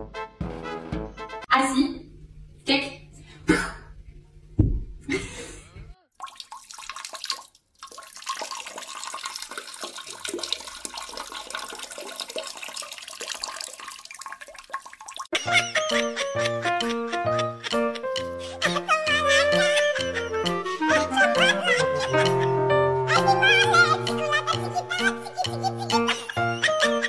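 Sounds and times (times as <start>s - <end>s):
toilet flushing: 6.2s - 15.3s.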